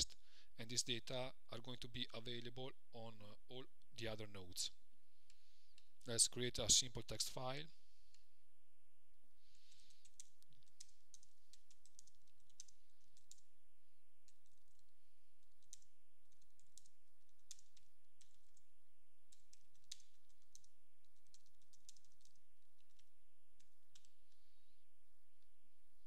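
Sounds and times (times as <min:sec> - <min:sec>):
computer keyboard typing: 0:09.6 - 0:13.5, 0:14.2 - 0:18.7, 0:19.3 - 0:24.4.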